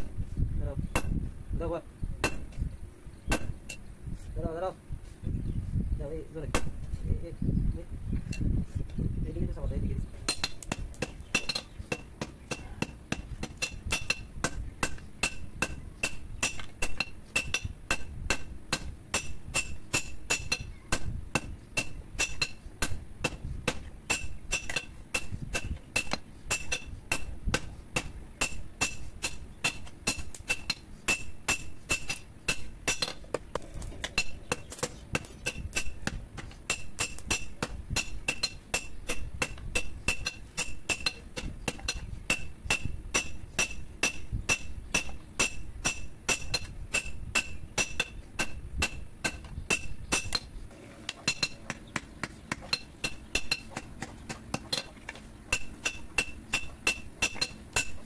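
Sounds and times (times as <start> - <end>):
hammer striking metal on anvil: 10.3 - 33.2, 35.2 - 50.5, 55.5 - 58.0.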